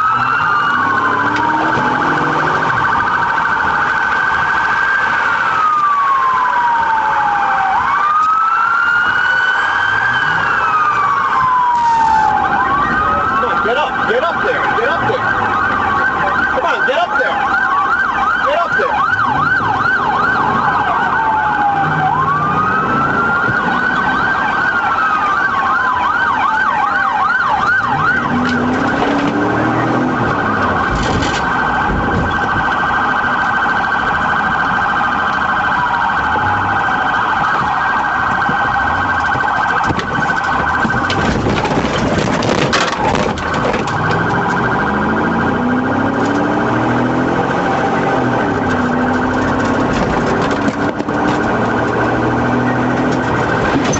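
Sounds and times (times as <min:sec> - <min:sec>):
engine revving: 0:00.0 - 0:03.0, 0:27.9 - 0:31.0, 0:43.8 - 0:53.9
police siren yelp and wail: 0:00.0 - 0:53.9
broad clattering noise: 0:39.2 - 0:44.6, 0:49.3 - 0:52.0.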